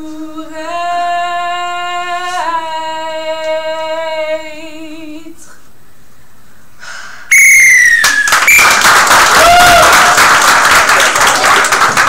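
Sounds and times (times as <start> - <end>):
referee's whistle blast: 7.3 - 8.8
audience applause and cheering: 7.8 - 12.0.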